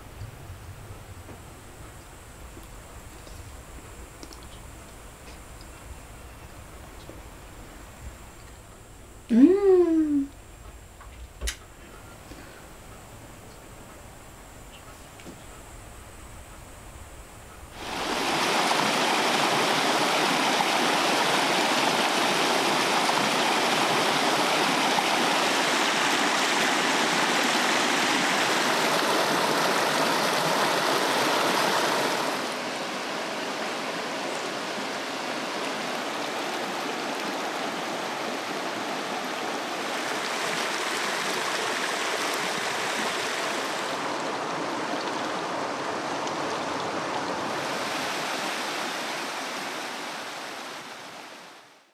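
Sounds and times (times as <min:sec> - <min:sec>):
stream rushing over rocks: 0:17.8 - 0:51.9.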